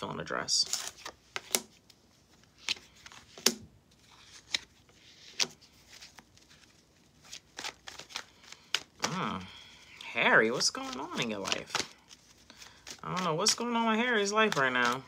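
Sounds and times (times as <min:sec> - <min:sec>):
cards snapping and clicking: 0:00.7 - 0:02.0, 0:02.6 - 0:03.6, 0:07.5 - 0:09.2.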